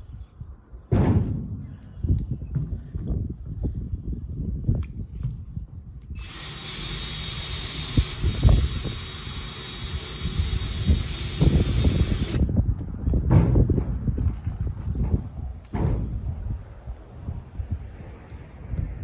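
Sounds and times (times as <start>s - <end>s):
wind buffeting microphone: 0.0s - 19.0s
cordless drill driving screw into metal: 6.2s - 12.4s.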